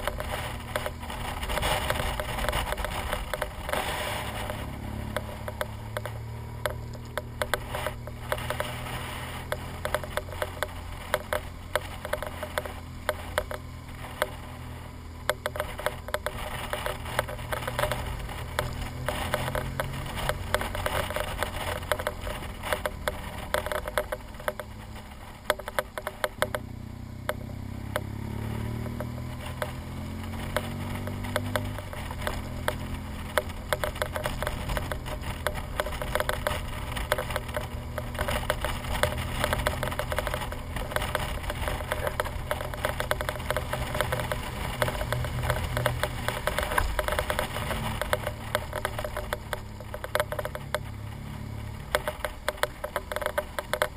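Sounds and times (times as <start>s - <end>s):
motorcycle engine running: 0.0s - 53.9s.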